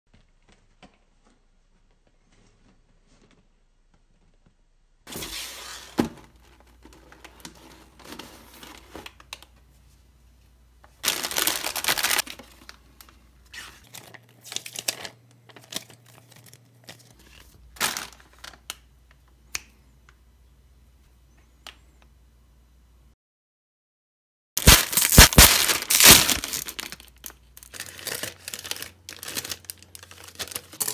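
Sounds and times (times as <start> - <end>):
plastic packaging crinkling: 11.0 - 18.9, 24.6 - 30.9.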